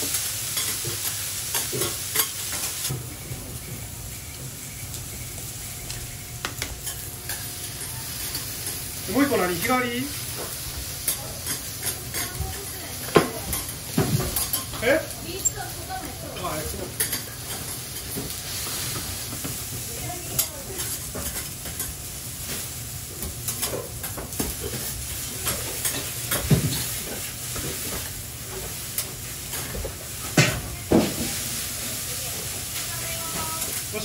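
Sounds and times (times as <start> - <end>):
batter sizzling on griddle: 0.0 - 34.0.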